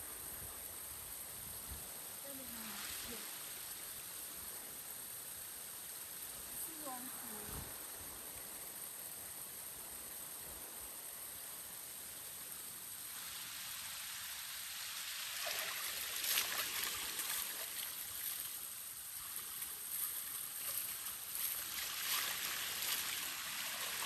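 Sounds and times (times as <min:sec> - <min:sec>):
hands splashing water in stream: 0:15.3 - 0:24.0.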